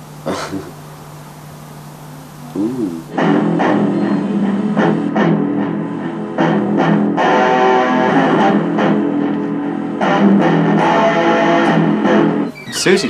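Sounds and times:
electric guitar chords: 0:00.0 - 0:12.6
live rock band music: 0:03.1 - 0:12.5.

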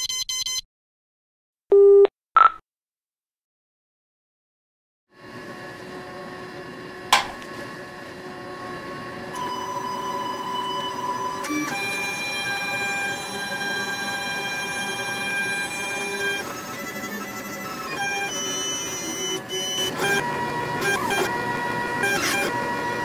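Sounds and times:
stepper motors whining: 0:09.3 - 0:23.0.

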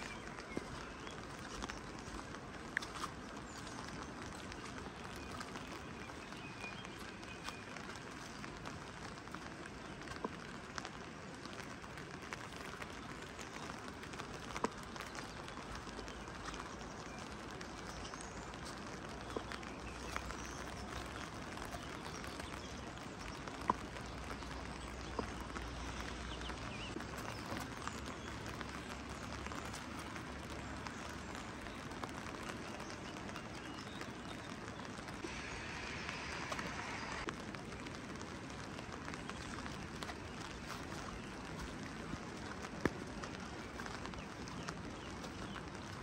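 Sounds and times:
sharp drips tapping: 0:00.0 - 0:46.0
steady rain: 0:00.0 - 0:46.0.

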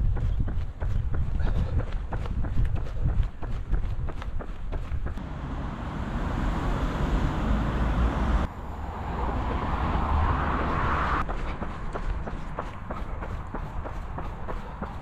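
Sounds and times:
footsteps on a path: 0:00.0 - 0:05.9, 0:11.2 - 0:15.0
road traffic rushing: 0:05.1 - 0:15.0.

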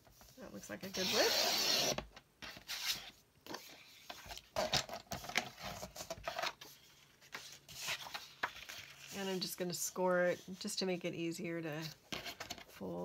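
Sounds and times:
paper rustling: 0:02.4 - 0:10.6.

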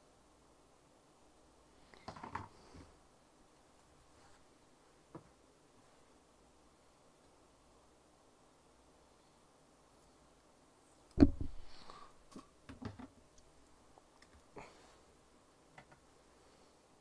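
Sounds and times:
plastic pots clicking and rattling: 0:02.0 - 0:02.9, 0:11.2 - 0:13.2.

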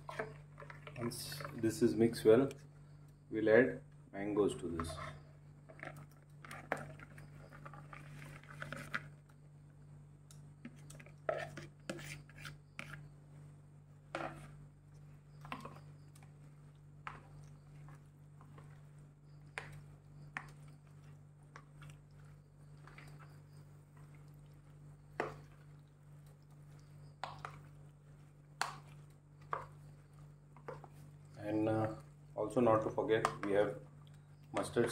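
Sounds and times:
spoon scraping plastic bowl: 0:00.0 - 0:01.8, 0:04.7 - 0:09.2, 0:10.6 - 0:13.1, 0:14.1 - 0:14.6
soft wet mixing sounds: 0:00.0 - 0:34.9
steady low hum: 0:00.0 - 0:34.9.

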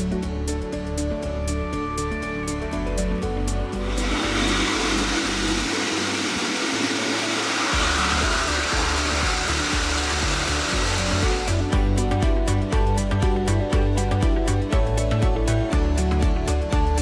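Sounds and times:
background music: 0:00.0 - 0:17.0
pet dryer blowing air: 0:03.8 - 0:12.0.

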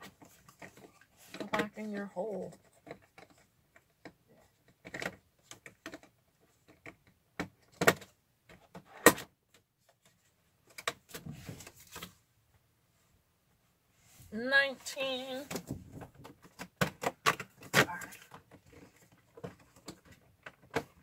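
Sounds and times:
cardboard rustling: 0:09.8 - 0:12.3.

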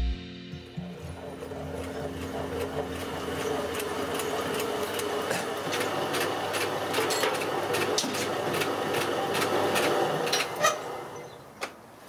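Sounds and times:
grain mill motor humming: 0:00.0 - 0:11.2.

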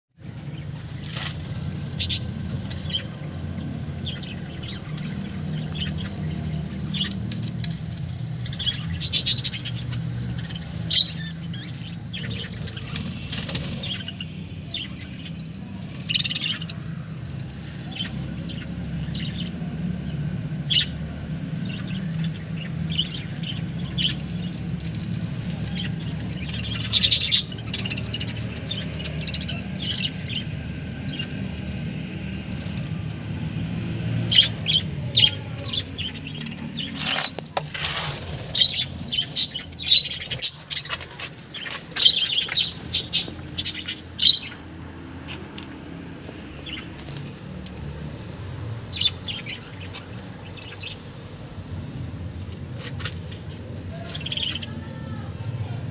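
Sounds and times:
budgerigars chirping: 0:00.6 - 0:03.3, 0:08.4 - 0:16.8, 0:25.6 - 0:31.6, 0:34.2 - 0:37.4, 0:38.2 - 0:44.7, 0:48.9 - 0:51.1.

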